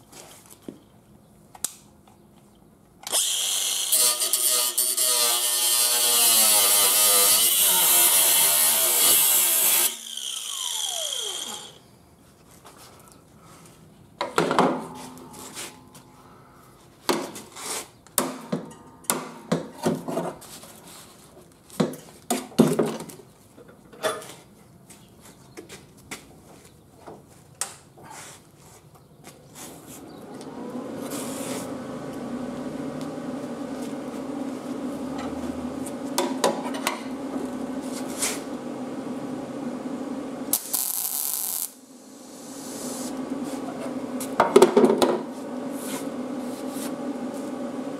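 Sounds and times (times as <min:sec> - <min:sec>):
steady hum: 0:09.8 - 0:17.5, 0:29.4 - 0:47.9
hissing burst: 0:40.5 - 0:43.7.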